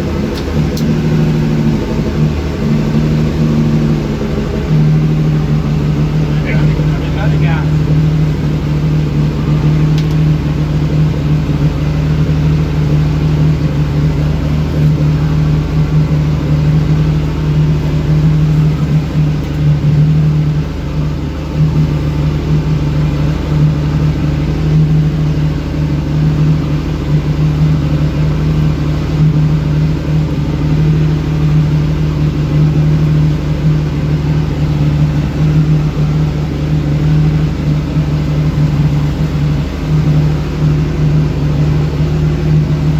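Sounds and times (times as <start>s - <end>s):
boat engine drone: 0.0s - 42.9s.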